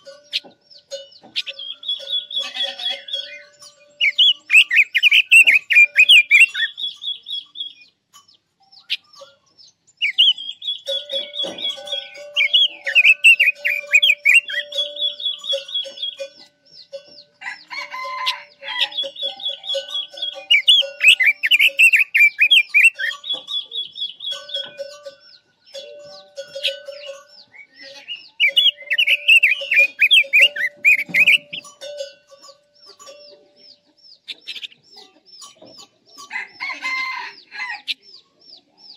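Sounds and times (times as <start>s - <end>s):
songbird warbling and trilling: 0.0s - 38.9s
rooster crowing: 17.4s - 19.2s, 36.3s - 38.0s.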